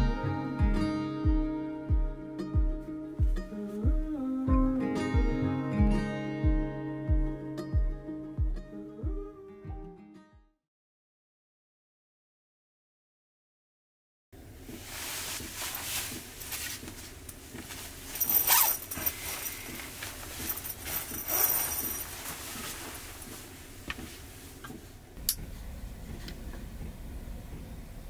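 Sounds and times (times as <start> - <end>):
sleeping bag rustling: 14.6 - 25.1.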